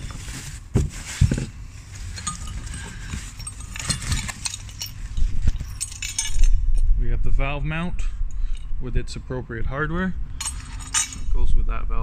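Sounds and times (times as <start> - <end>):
plastic wrapping rustling: 0.0 - 5.5
knocks in cardboard box: 0.7 - 1.5
light metal clinks: 2.1 - 6.7.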